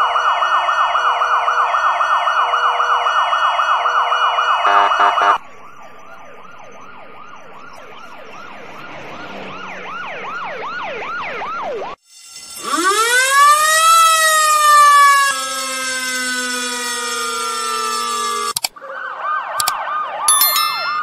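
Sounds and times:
yelping fire engine siren: 0.0 - 12.0, 12.6 - 21.0
wailing siren winding up: 5.4 - 21.0.

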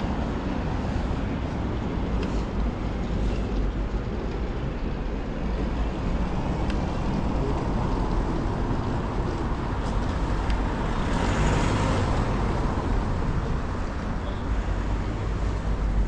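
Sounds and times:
traffic road noise rumble: 0.0 - 16.0
car passing close by: 10.9 - 12.7.

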